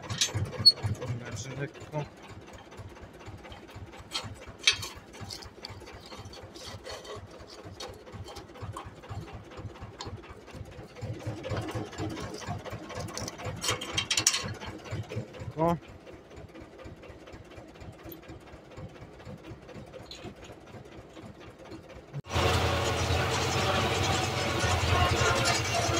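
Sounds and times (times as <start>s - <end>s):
metal clattering: 0.0s - 15.3s
metal hitch parts clanking: 0.0s - 15.6s, 19.7s - 25.9s
diesel tractor engine idling: 0.0s - 25.9s.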